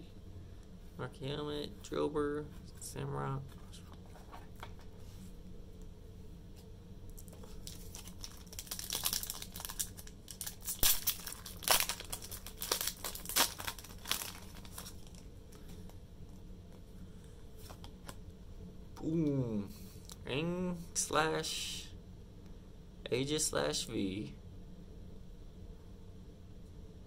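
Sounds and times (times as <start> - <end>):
foil wrapper crinkling and tearing: 7.2 - 15.3.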